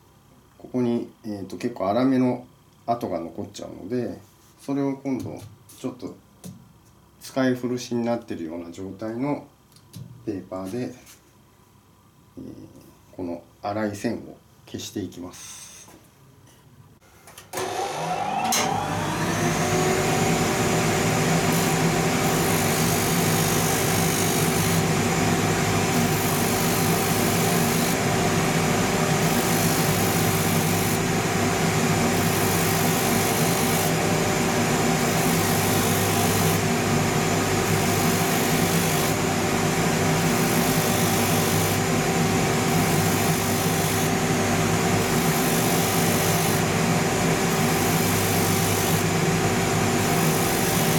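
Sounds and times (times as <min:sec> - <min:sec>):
sanding machine running: 0:17.6 - 0:50.9
sandpaper sanding leather: 0:25.9 - 0:28.0, 0:45.0 - 0:46.8, 0:47.5 - 0:49.1, 0:50.0 - 0:50.9.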